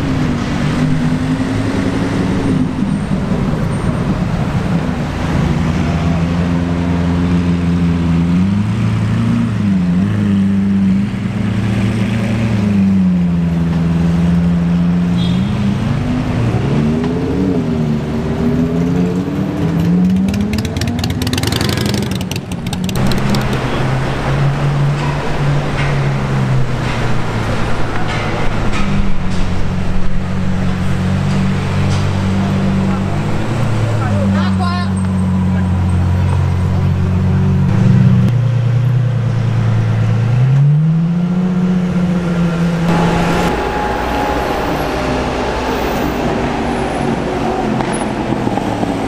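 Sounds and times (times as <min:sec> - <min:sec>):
car engines revving: 0:00.0 - 0:49.0
exhaust crackling: 0:19.6 - 0:24.7.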